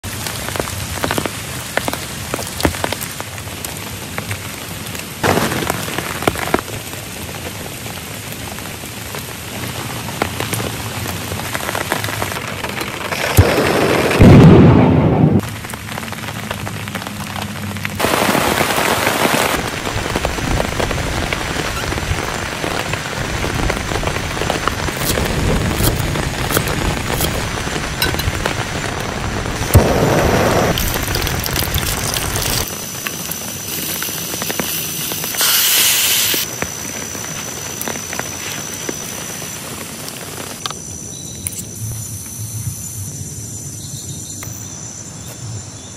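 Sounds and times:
heavy rain: 0.0s - 41.1s
thunder rumble: 12.0s - 17.0s, 17.9s - 32.7s.

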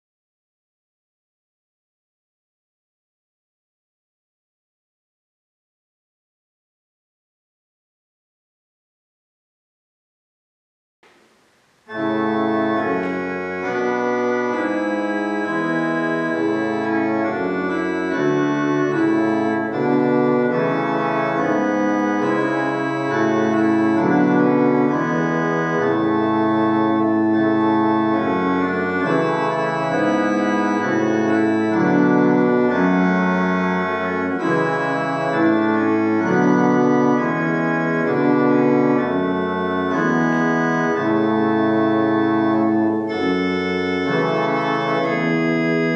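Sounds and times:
church organ playing slow chords: 11.1s - 45.9s.

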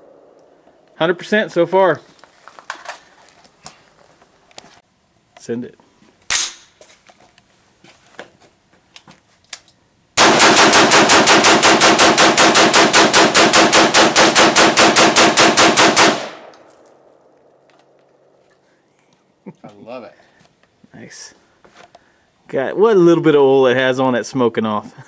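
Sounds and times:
rapid rifle shots: 10.2s - 16.5s.

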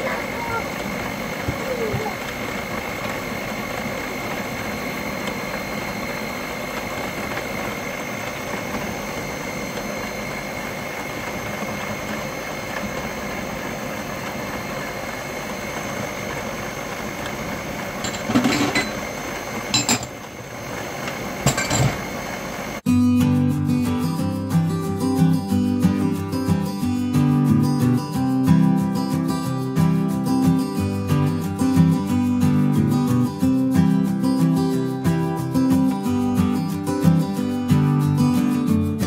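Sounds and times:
stand mixer motor whine: 0.0s - 22.9s
glass bowl clinking: 18.0s - 19.1s, 19.7s - 20.2s, 21.4s - 22.0s.

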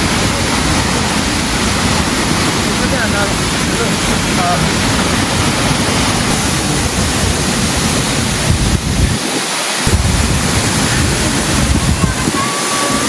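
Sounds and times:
waterfall rushing: 0.0s - 13.0s
wind buffeting microphone: 0.0s - 13.0s.

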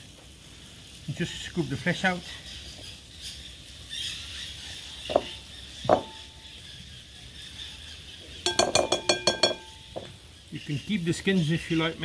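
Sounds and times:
metal spoon knocking a glass bowl: 8.5s - 9.7s.

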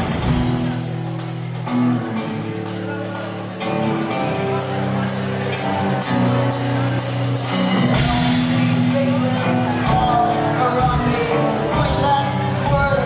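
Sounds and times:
heavy bass guitar: 0.0s - 13.0s
live punk rock band: 0.0s - 13.0s.

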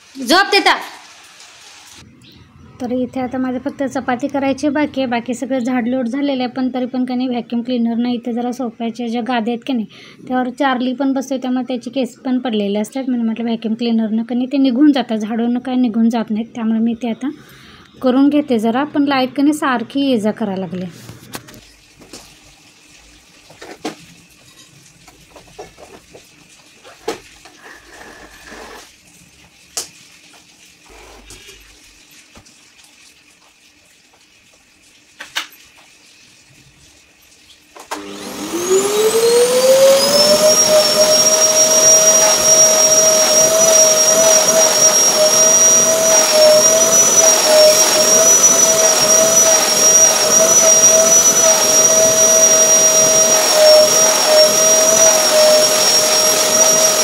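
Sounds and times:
vacuum cleaner motor whining: 37.8s - 57.0s.

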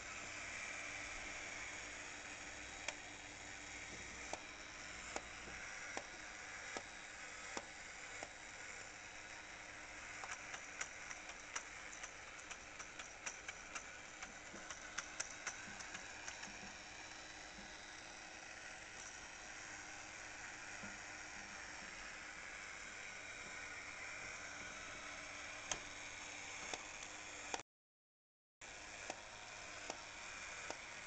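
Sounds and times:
tin toy mechanism running: 0.0s - 27.6s, 28.6s - 31.0s
sharp mechanism clicks: 10.0s - 16.9s.

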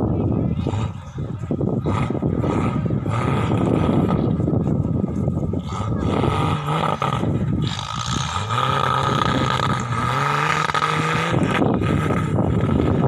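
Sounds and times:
engine revving: 1.8s - 4.6s, 5.6s - 13.0s.

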